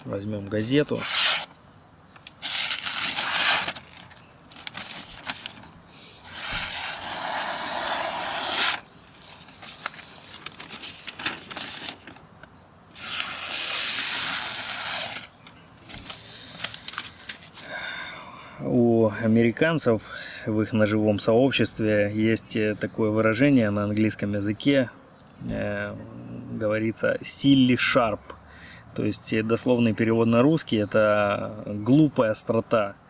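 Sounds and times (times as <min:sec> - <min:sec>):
knife slicing newspaper: 0:00.9 - 0:01.6, 0:02.3 - 0:05.6, 0:06.3 - 0:12.1, 0:13.0 - 0:15.4
paper rustling and crinkling: 0:02.2 - 0:17.6.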